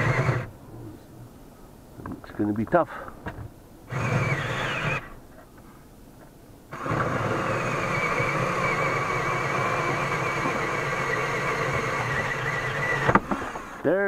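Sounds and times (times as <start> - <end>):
drill cutting metal with whine: 0.0 - 0.5, 3.9 - 5.1, 6.7 - 13.9.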